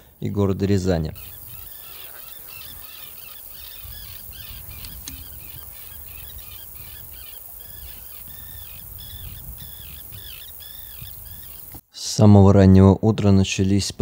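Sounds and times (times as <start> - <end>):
terns calling: 0.0 - 11.8
wind rumble on microphone: 3.7 - 11.8.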